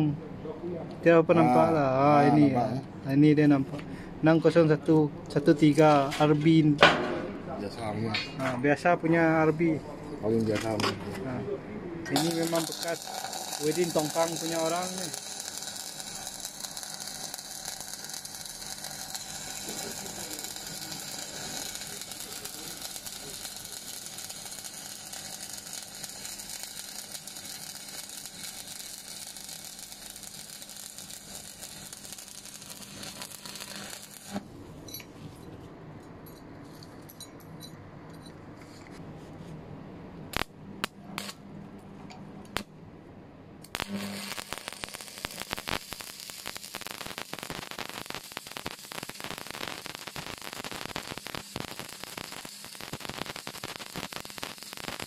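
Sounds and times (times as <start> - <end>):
welding arc crackling: 12.1 - 34.5, 40.3 - 41.4, 42.5 - 42.7, 43.7 - 55.0.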